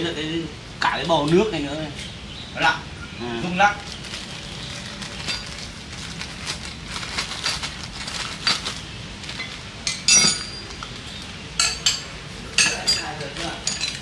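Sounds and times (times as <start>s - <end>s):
metal tools clinking on concrete: 4.1s - 5.8s, 6.4s - 14.0s.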